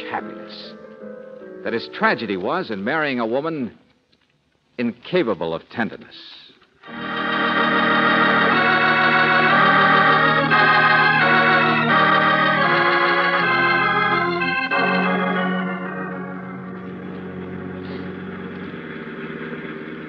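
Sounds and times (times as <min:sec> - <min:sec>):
sustained organ chords: 0:06.8 - 0:20.0.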